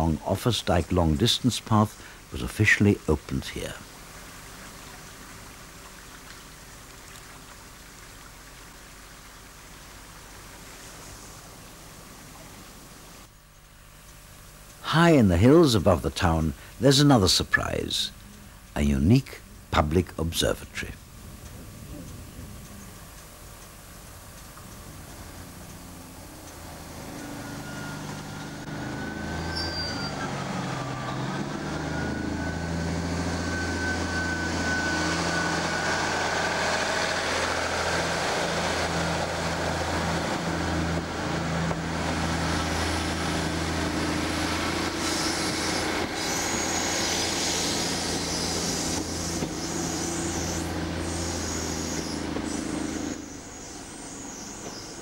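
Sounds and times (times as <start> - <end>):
heavy machinery rumbling: 24.6 - 55.0
wavering high squeal: 26.7 - 40.7, 42.4 - 55.0.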